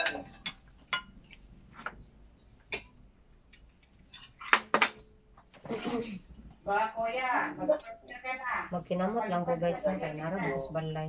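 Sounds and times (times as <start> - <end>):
spoon clinking on ceramic bowls: 0.0 - 1.4.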